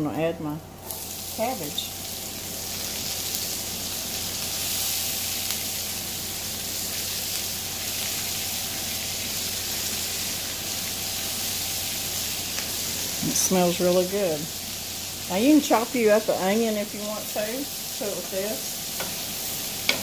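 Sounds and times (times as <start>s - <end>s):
cabbage sizzling in a skillet: 0.8s - 20.0s.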